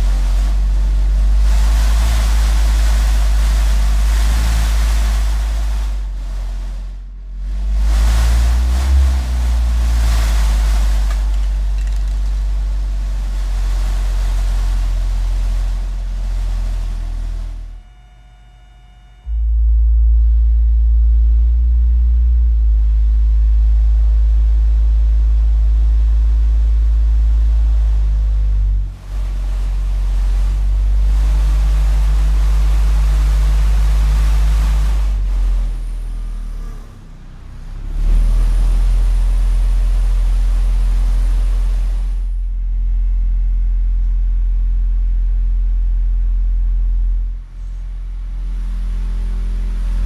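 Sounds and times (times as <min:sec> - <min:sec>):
hissing buzz: 0:00.0 - 0:20.1
deep bass from subwoofers: 0:00.0 - 0:50.0
rattling buzz of loose items: 0:09.9 - 0:13.0
vinyl sheet shaking: 0:09.9 - 0:13.0.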